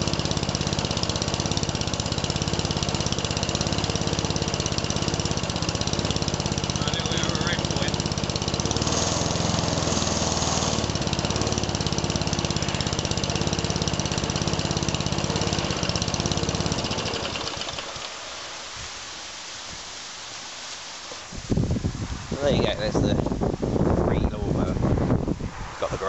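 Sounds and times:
engine running down: 0.0 - 18.7
lawnmower engine running: 0.0 - 19.2.

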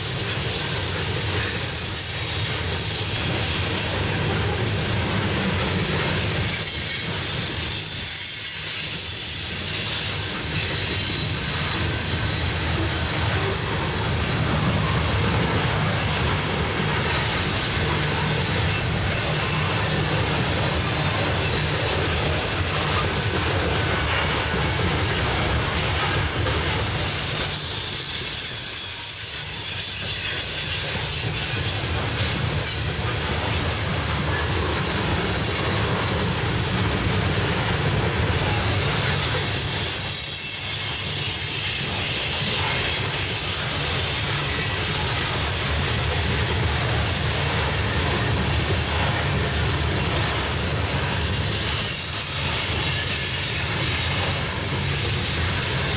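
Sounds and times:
train wheels clacking over rail joints: 0.0 - 55.9
high-pitched wheel squeal: 27.0 - 36.6.

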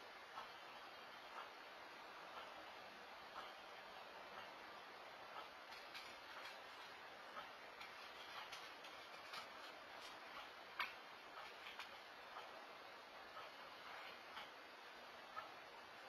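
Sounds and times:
microphone hiss: 0.0 - 16.0
faint irregular ticks: 3.3 - 14.7.

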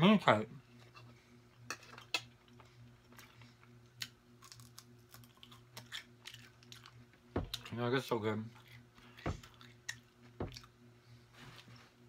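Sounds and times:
soft chewing: 1.9 - 7.7, 8.5 - 10.8.

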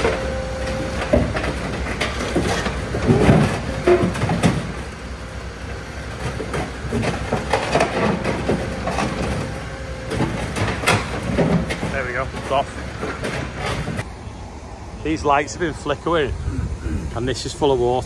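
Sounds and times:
diesel engine rumbling: 0.0 - 18.0
steel tracks clanking: 0.0 - 18.0.

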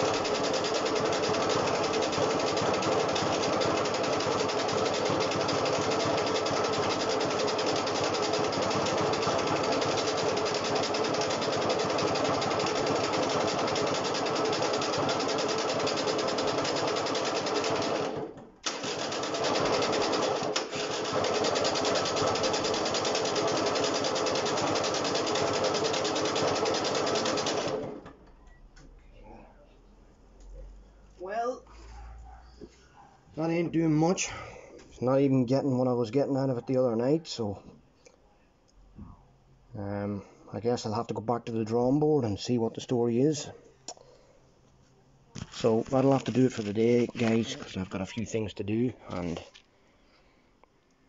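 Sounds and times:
person talking: 45.4 - 49.6.

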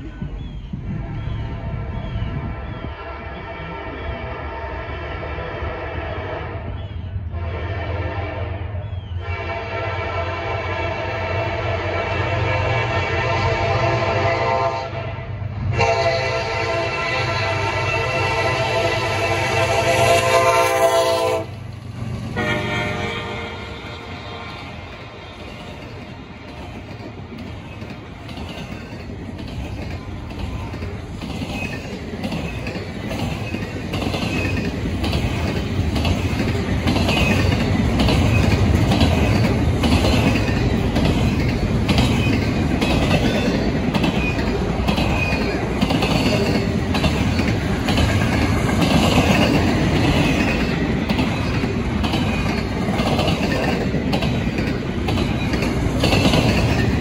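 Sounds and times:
freight train wheels rumbling: 0.0 - 57.0
wheels clacking over rail joints: 20.7 - 57.0.

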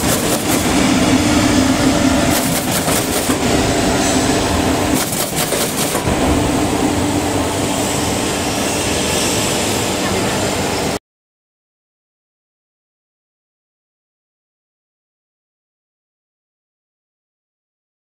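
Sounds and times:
hissing rattle bursts: 0.0 - 0.8, 2.3 - 3.4, 4.9 - 6.1, 7.5 - 10.1
machine clattering: 0.0 - 0.8, 2.3 - 3.5, 4.9 - 6.5
machine hum: 0.0 - 11.0.

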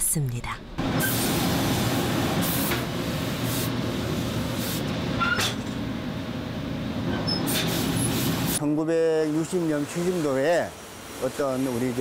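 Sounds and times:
steam iron hissing: 0.9 - 4.9.

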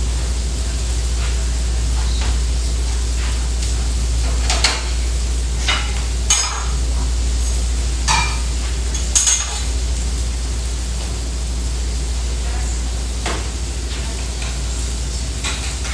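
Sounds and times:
food frying on a griddle: 0.0 - 15.9
steady low hum: 0.0 - 15.9
spatulas clanking on metal: 5.6 - 7.1, 8.0 - 9.8.

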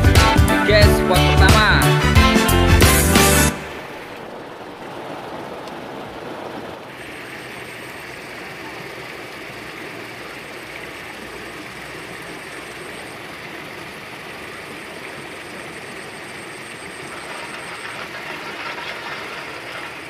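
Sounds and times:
river rushing over rocks: 3.4 - 7.6.

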